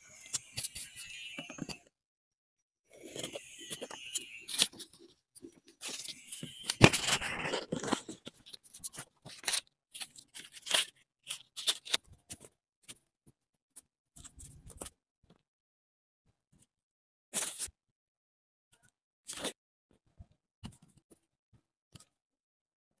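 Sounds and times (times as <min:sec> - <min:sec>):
paper rustling and crinkling: 0:03.0 - 0:13.0.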